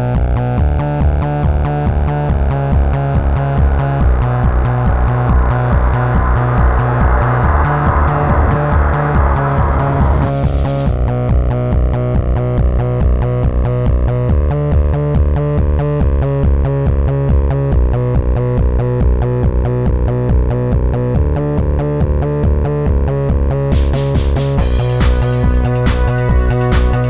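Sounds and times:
heavy pulsing bass: 0:00.2 - 0:11.6.

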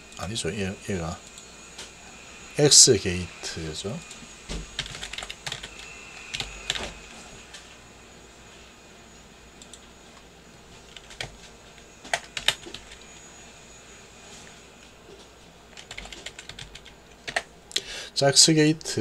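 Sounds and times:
faint steady hiss: 0:00.0 - 0:19.0
keyboard keys clicking: 0:04.8 - 0:06.9, 0:15.8 - 0:17.4.

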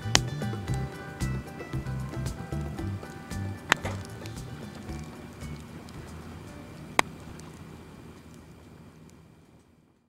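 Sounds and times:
background music: 0:00.0 - 0:07.4
firewood crackling: 0:00.0 - 0:10.0.

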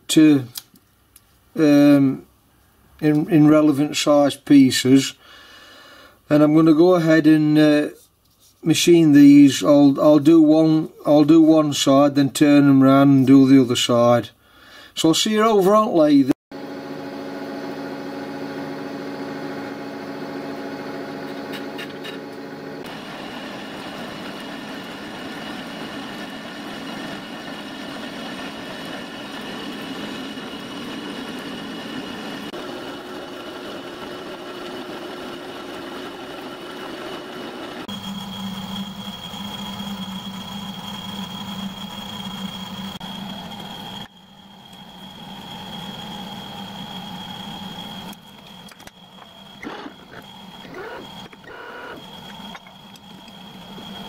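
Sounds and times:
high whine: 0:16.6 - 0:54.0
metal lathe running: 0:16.6 - 0:54.0.

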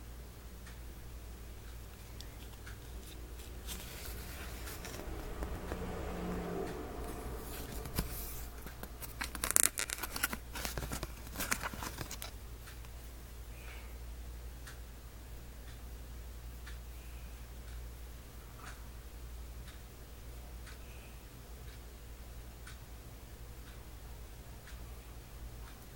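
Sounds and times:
low electrical hum: 0:00.0 - 0:25.9
cardboard card rubbing and scraping: 0:02.2 - 0:06.0, 0:07.0 - 0:12.3.

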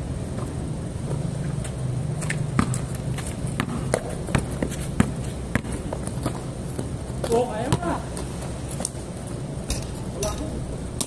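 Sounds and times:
basketball bouncing on concrete: 0:01.1 - 0:09.0.

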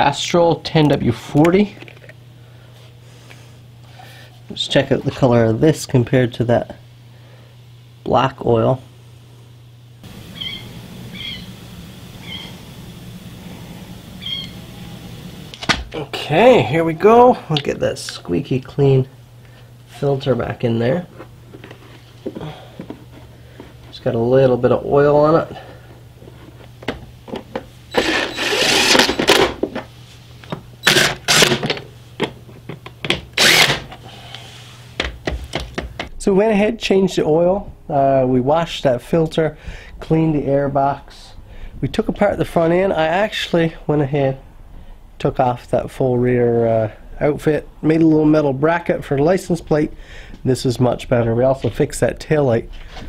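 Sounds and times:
animal chirps: 0:10.3 - 0:11.6, 0:12.2 - 0:12.6, 0:14.2 - 0:14.9
cordless drill driving screws: 0:27.9 - 0:29.5, 0:30.8 - 0:31.7, 0:33.4 - 0:33.9.

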